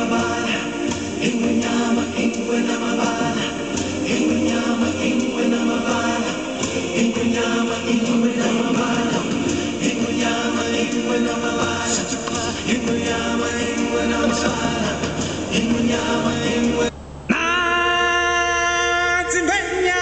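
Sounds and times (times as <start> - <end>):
choir chanting and singing: 0.0 - 16.9
musical backing: 0.0 - 20.0.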